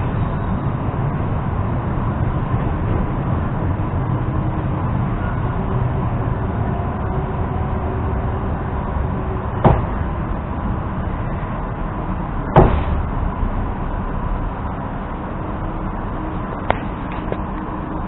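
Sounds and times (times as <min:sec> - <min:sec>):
train interior rumble: 0:00.0 - 0:18.0
sharp knocks: 0:09.6 - 0:10.2, 0:12.5 - 0:13.1.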